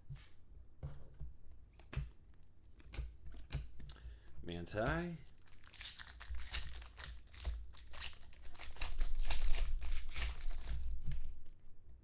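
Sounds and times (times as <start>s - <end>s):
foil wrapper tearing and crinkling: 5.2s - 11.1s.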